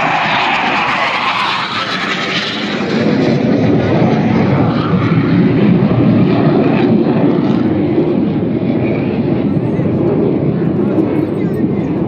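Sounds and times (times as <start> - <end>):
jets flying over: 0.0 - 12.0.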